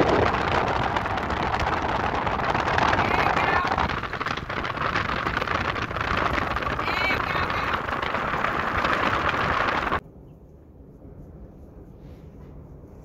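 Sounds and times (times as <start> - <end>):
tyres crackling on gravel: 0.0 - 10.0
wind rushing on microphone: 0.0 - 10.0.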